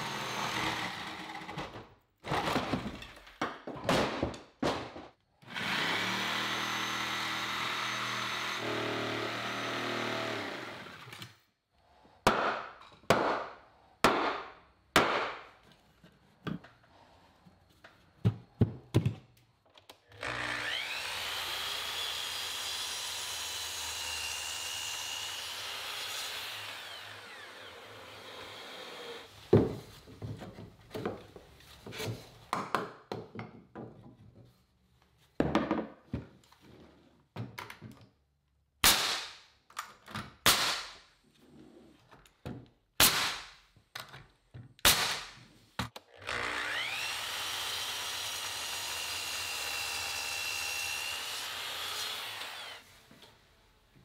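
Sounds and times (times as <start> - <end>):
miter saw cutting wood: 0.0 - 1.6, 5.4 - 11.2, 20.1 - 29.3, 46.1 - 53.0
pneumatic nailer strikes: 38.8 - 39.4, 40.4 - 41.0, 43.0 - 43.5, 44.8 - 45.4.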